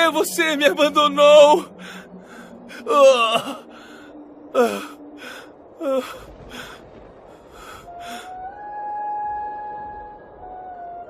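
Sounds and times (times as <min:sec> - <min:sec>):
person groaning: 0:02.7 - 0:03.7, 0:04.6 - 0:05.0.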